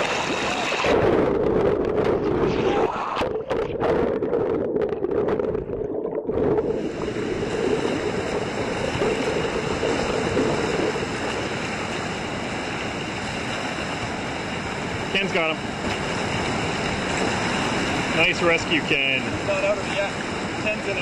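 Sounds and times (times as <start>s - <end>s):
whitewater rushing: 0.0s - 1.1s, 6.6s - 21.0s.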